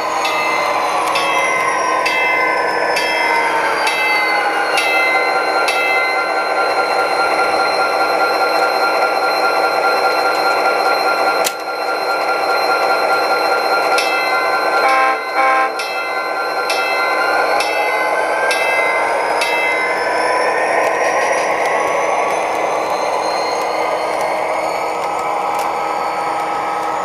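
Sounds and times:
model locomotive engine sound: 0.0s - 27.0s
short horn blasts: 14.8s - 15.8s.

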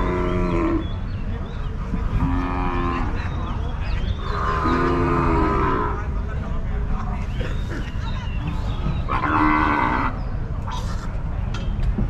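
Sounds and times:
cattle mooing: 9.1s - 10.2s.

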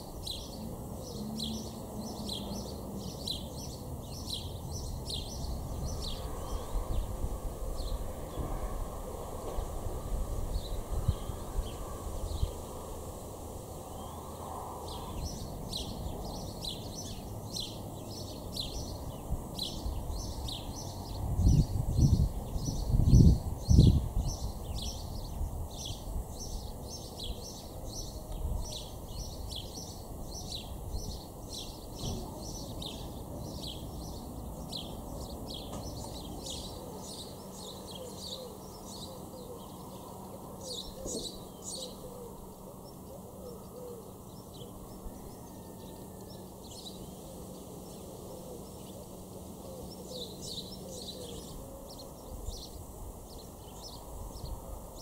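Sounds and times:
small birds chirping: 0.0s - 55.0s
wind buffeting microphone: 4.3s - 13.2s, 18.6s - 29.6s.

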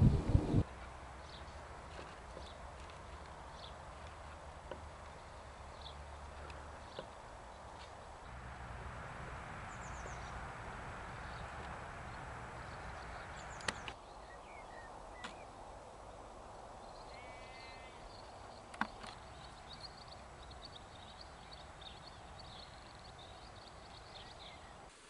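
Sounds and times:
background hiss: 0.0s - 25.0s
small birds twittering: 1.2s - 15.6s, 16.7s - 24.9s
sharp clicks: 13.4s - 14.0s.

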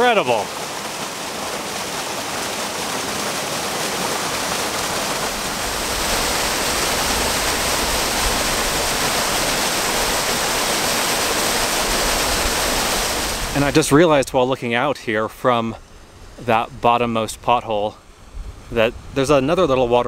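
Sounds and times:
waterfall pouring into pool: 0.0s - 14.0s.

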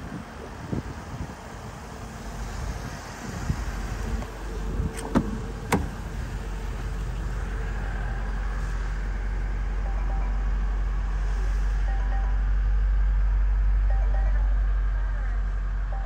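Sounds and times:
low rumble: 1.6s - 16.0s
car door latch clicks: 4.8s - 6.0s.

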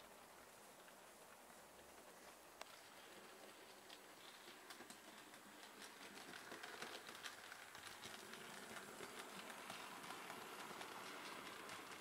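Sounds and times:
model train rumbling on track: 0.0s - 12.0s
wheels clicking on rails: 0.0s - 12.0s.

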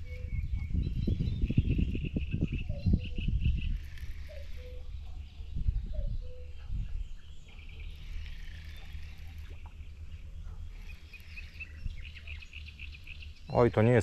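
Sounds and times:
birds calling: 0.0s - 14.0s.

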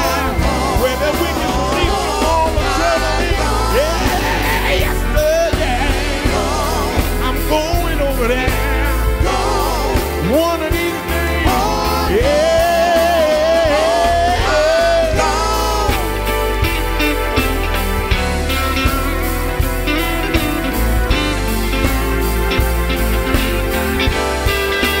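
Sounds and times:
male vocal quartet singing: 0.0s - 17.6s
bass line: 0.0s - 25.0s
drums: 0.0s - 25.0s.

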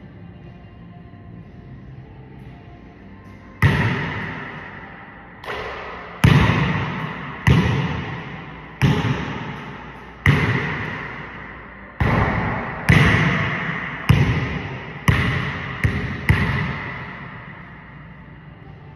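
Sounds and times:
basketball bouncing on wooden floor: 12.0s - 17.0s.

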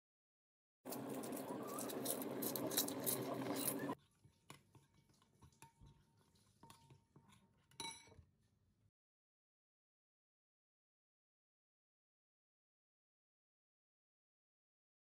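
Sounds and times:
spoon stirring thick paste: 0.9s - 8.8s
spoon clinking on ceramic: 5.4s - 8.3s.

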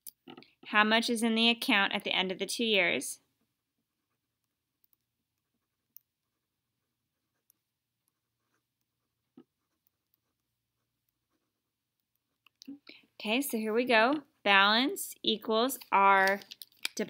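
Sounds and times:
pen scratching on paper: 3.8s - 12.4s.

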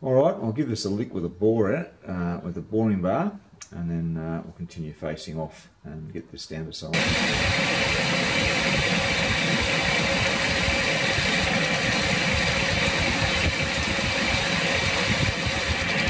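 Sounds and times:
constant machine tone: 7.0s - 16.0s
metal lathe running: 7.0s - 16.0s.

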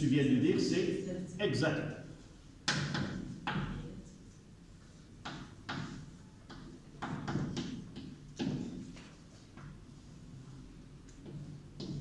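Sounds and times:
chalk tapping and scraping on blackboard: 2.6s - 3.8s, 4.8s - 10.1s, 11.1s - 12.0s.

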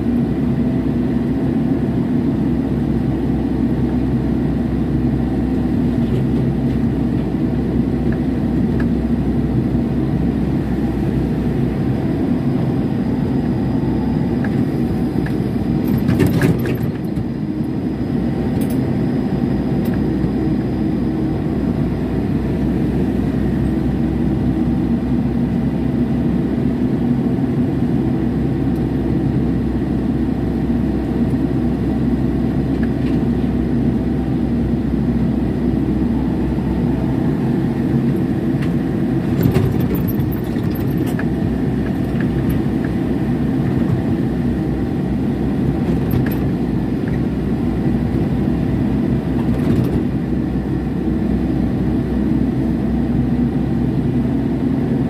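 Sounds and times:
excavator diesel engine running: 0.0s - 27.2s, 28.0s - 51.0s.

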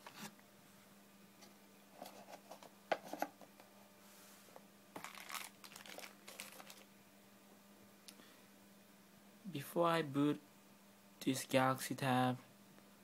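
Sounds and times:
plastic bags crinkling: 5.0s - 6.9s.

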